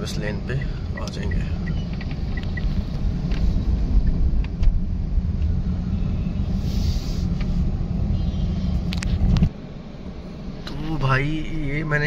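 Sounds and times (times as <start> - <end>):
car engine and road rumble: 0.0 - 12.0
brief hiss: 6.5 - 7.6.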